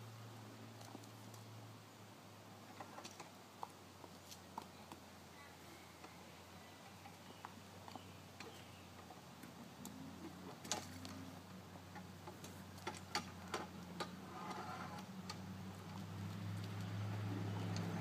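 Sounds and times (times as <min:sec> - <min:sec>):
clicks and knocks of a dolly: 0:11.9 - 0:16.0.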